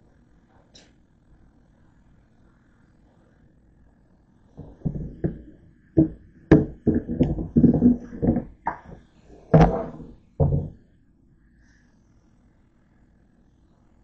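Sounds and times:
metal bowl knocking on sink: 4.6s - 9.0s, 9.6s - 10.8s.

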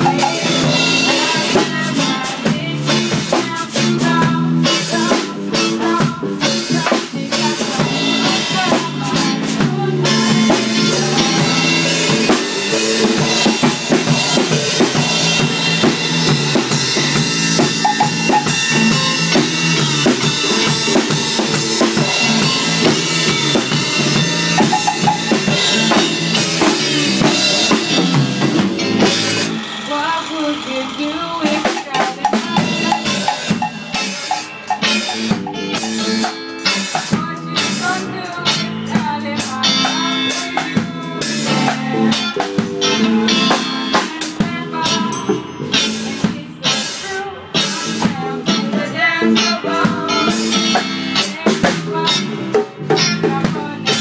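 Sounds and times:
drum kit rimshots and snare: 0.0s - 30.0s, 31.4s - 54.0s
reggae music: 0.0s - 54.0s.

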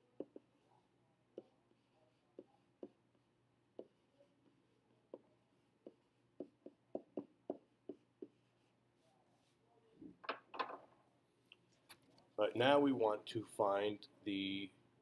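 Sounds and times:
stylus tapping on tablet screen: 5.1s - 8.4s.

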